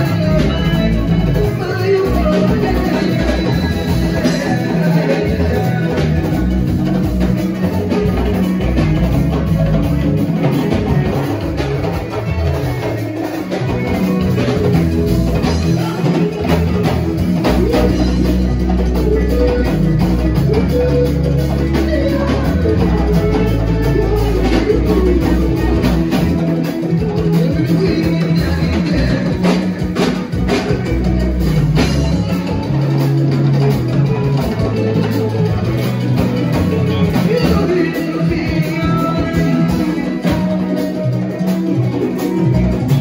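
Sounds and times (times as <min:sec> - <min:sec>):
live band playing dance music: 0:00.0 - 0:43.0.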